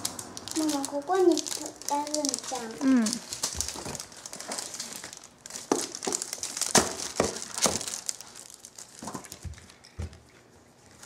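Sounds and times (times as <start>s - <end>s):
paper rustling and crinkling: 0.0s - 11.0s.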